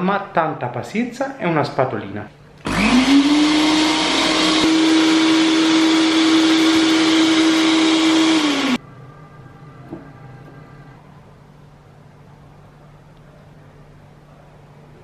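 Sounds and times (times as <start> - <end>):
blender running: 2.6 - 8.8.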